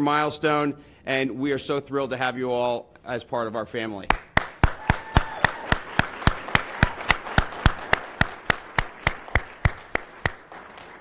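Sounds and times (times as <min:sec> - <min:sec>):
close regular hand claps: 0:04.1 - 0:11.0
group applause: 0:04.1 - 0:11.0.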